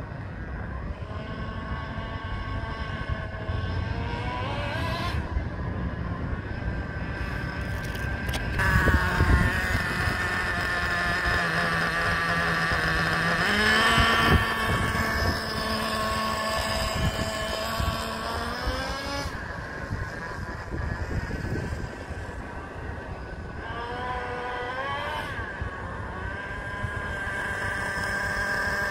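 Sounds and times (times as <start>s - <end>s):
small model engine buzzing: 0.0s - 28.9s.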